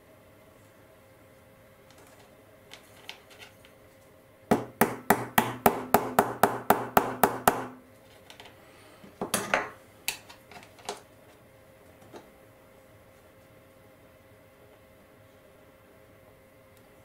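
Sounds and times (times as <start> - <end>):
small hammer tapping: 4.5 - 7.8.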